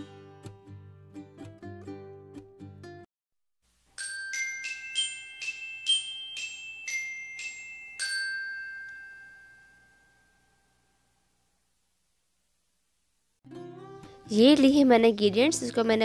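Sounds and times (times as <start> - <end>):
bell-like mallet notes: 4.0 - 10.9.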